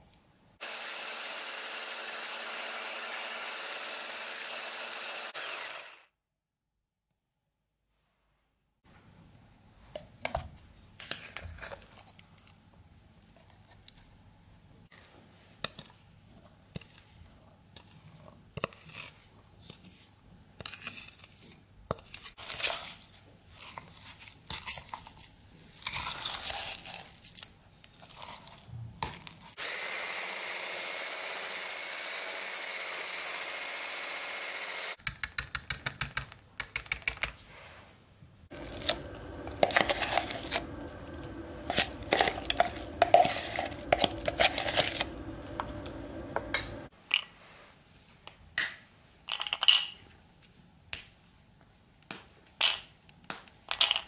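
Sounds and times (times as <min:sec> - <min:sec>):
stick blender running: 0:00.6 - 0:06.1, 0:29.6 - 0:35.0, 0:38.5 - 0:46.9
metal utensil scraping a bowl: 0:38.5 - 0:46.8
spoon scraping in a jug: 0:38.5 - 0:46.8.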